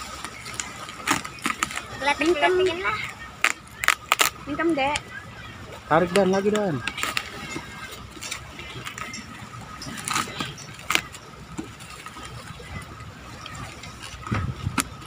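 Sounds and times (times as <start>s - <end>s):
plastic wrapping being torn: 3.4s - 4.4s.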